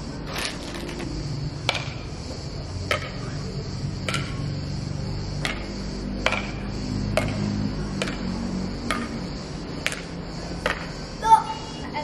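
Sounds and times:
high-pitched drone: 0:00.0 - 0:12.0
rackets striking shuttlecock: 0:00.4 - 0:02.2, 0:02.8 - 0:03.4, 0:04.0 - 0:04.5, 0:05.4 - 0:08.3, 0:08.9 - 0:10.9.

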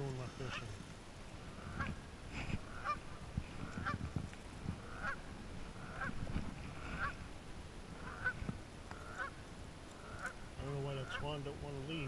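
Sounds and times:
waterfowl honking: 0:00.3 - 0:00.7, 0:01.5 - 0:02.0, 0:02.6 - 0:04.0, 0:04.8 - 0:06.2, 0:06.8 - 0:07.2, 0:08.0 - 0:09.4, 0:10.0 - 0:11.4.

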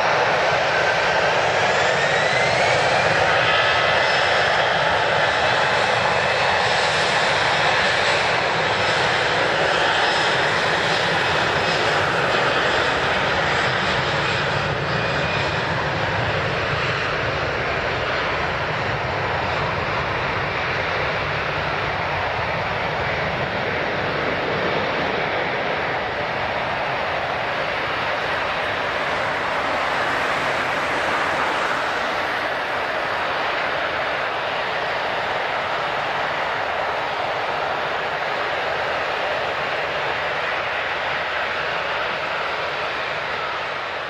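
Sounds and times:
jet engines running: 0:00.0 - 0:44.0.

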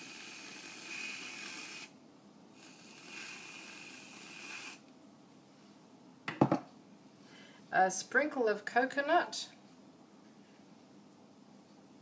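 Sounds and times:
aerosol can squirting with hiss: 0:00.0 - 0:02.0, 0:02.6 - 0:04.8.

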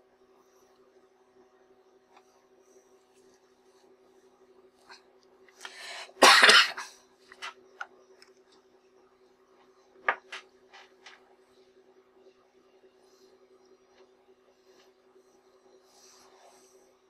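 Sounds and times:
breath: 0:05.6 - 0:06.2
person coughing: 0:06.0 - 0:07.0.

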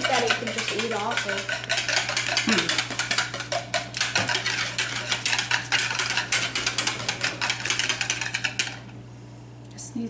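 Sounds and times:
utensil beating food in bowl: 0:00.0 - 0:08.9.

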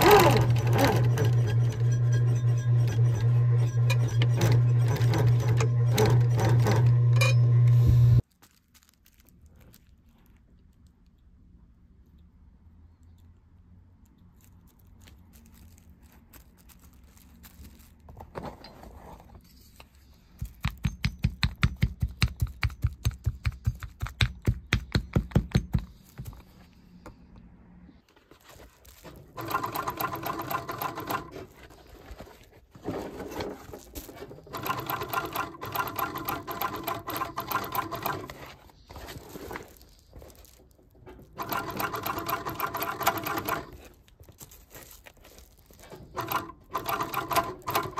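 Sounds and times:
industrial sewing machine stitching: 0:00.0 - 0:07.8, 0:29.3 - 0:31.5, 0:34.4 - 0:38.4, 0:41.3 - 0:43.8, 0:46.0 - 0:47.9.

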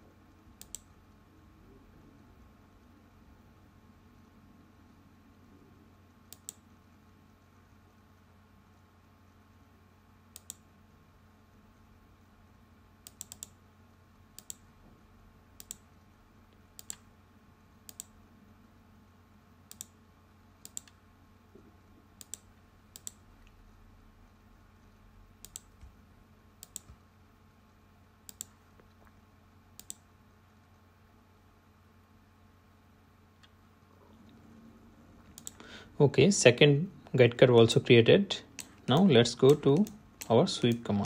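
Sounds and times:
low steady hum: 0:00.0 - 0:41.0
computer mouse clicks: 0:00.6 - 0:00.9, 0:06.3 - 0:06.7, 0:10.3 - 0:10.7, 0:13.0 - 0:13.6, 0:14.4 - 0:14.6, 0:15.6 - 0:15.9, 0:16.5 - 0:17.1, 0:17.8 - 0:18.2, 0:19.7 - 0:20.0, 0:20.6 - 0:21.0, 0:22.2 - 0:23.6, 0:25.4 - 0:26.0, 0:26.6 - 0:27.0, 0:28.2 - 0:29.1, 0:29.8 - 0:30.0, 0:35.2 - 0:35.6, 0:38.5 - 0:40.8.

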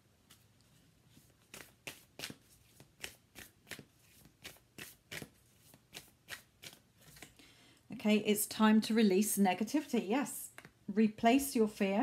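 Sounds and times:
cards being shuffled: 0:00.2 - 0:07.4.

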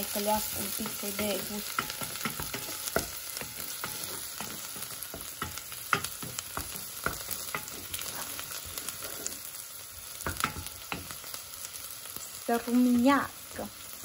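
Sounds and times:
vegetables sizzling in oil: 0:00.0 - 0:14.0
wooden spoon scraping a pot: 0:00.2 - 0:09.6.

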